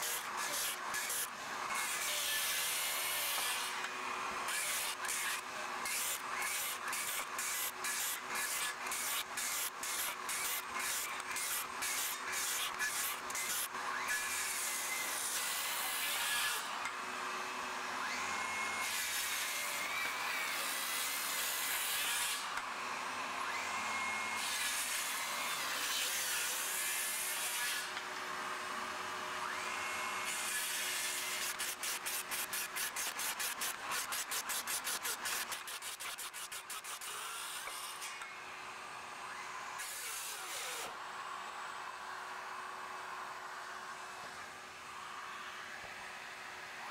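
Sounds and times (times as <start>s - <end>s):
circular saw cutting wood: 0.0s - 42.5s.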